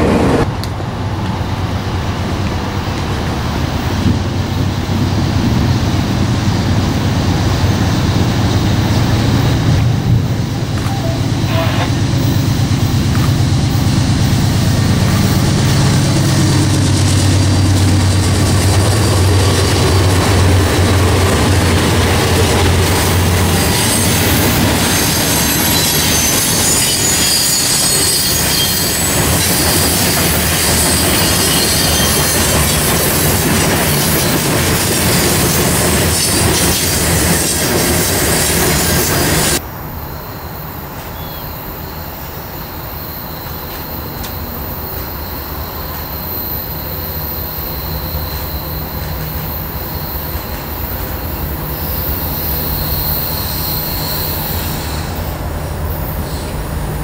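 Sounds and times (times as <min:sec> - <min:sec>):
diesel locomotive engine rumble: 0:00.0 - 0:57.0
train wheels rattling on rail: 0:00.0 - 0:57.0
high-pitched wheel squeal: 0:10.9 - 0:12.1, 0:23.5 - 0:34.5, 0:41.1 - 0:55.4.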